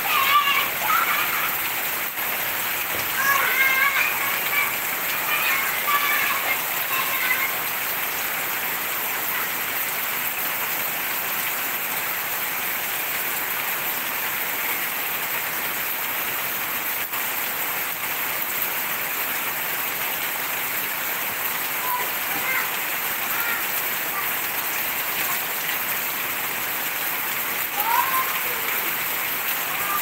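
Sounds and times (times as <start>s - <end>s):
heavy rain on street and leaves: 0.0s - 30.0s.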